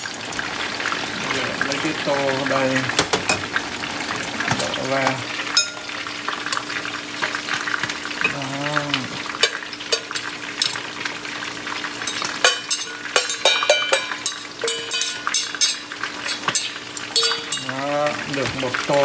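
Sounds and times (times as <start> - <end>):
fish sizzling in oil: 0.0 - 19.0
utensil scraping metal pot: 12.0 - 19.0.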